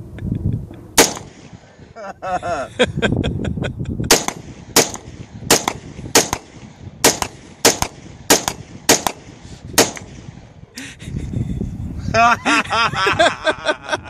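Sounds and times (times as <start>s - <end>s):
rifle shots with echo: 1.0s - 1.7s, 4.1s - 10.6s.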